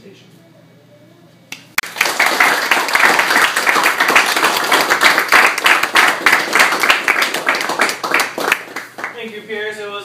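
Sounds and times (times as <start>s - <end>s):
audience applauding: 1.8s - 9.2s.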